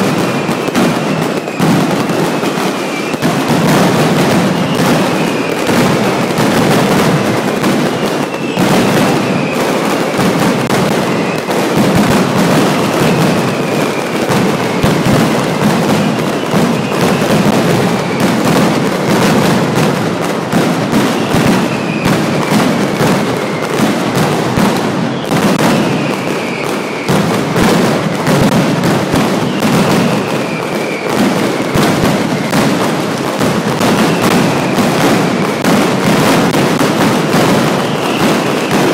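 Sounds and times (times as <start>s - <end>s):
firecrackers banging rapidly: 0.0s - 38.9s
high falling whistles: 25.0s - 27.2s.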